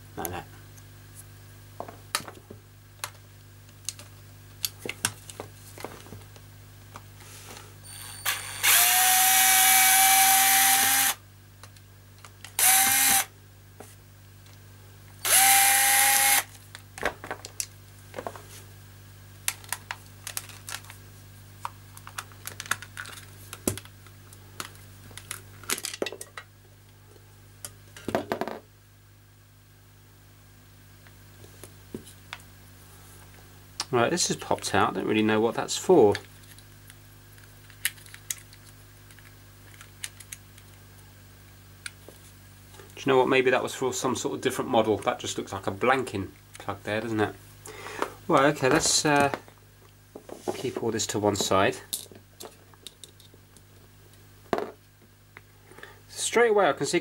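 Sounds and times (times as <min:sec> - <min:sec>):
cordless drill whining: 0:07.9 - 0:11.2, 0:12.6 - 0:13.3, 0:15.2 - 0:16.5.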